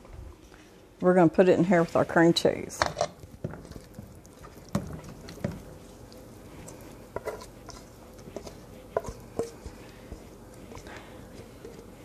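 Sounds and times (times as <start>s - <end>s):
wet mixture plopping and scraping: 2.9s - 9.8s.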